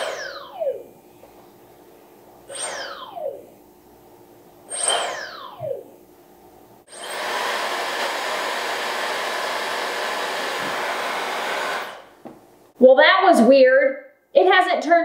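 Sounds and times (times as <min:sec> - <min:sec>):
hair dryer motor with air rush: 0:06.9 - 0:12.2
hair dryer whine: 0:06.9 - 0:12.2.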